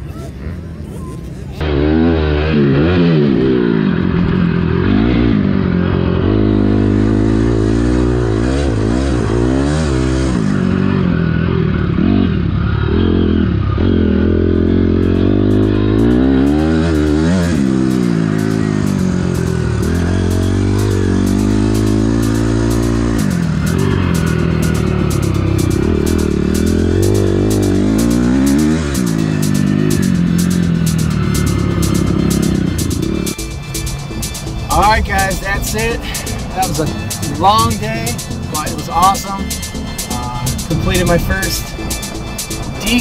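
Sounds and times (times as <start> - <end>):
motorcycle engine revving: 0.6 - 43.0.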